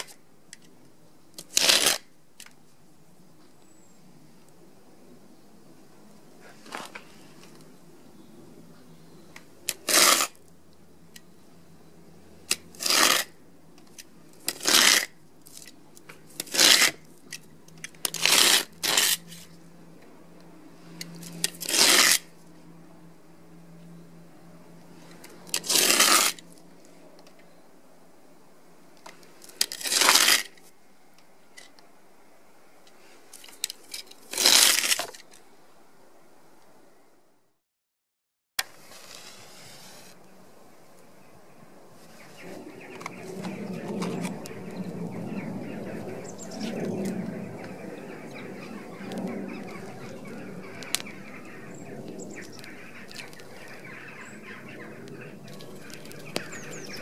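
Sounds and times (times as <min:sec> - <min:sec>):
paper sheet ripping: 0:01.4 - 0:02.1, 0:09.7 - 0:10.4, 0:12.7 - 0:13.3, 0:14.5 - 0:15.1, 0:16.4 - 0:17.0, 0:18.0 - 0:19.4, 0:21.3 - 0:22.3, 0:25.5 - 0:26.4, 0:29.6 - 0:30.6, 0:34.2 - 0:35.3.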